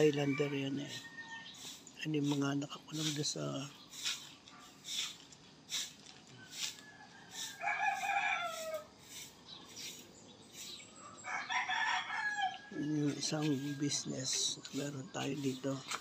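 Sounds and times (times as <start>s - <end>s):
rooster crowing: 0.1s - 1.6s, 6.5s - 9.0s, 11.1s - 13.9s.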